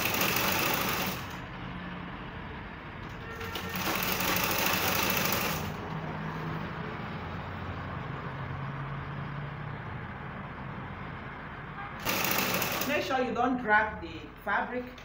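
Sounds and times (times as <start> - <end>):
sewing machine clatter: 0.0 - 1.4, 3.2 - 5.8, 12.0 - 13.1.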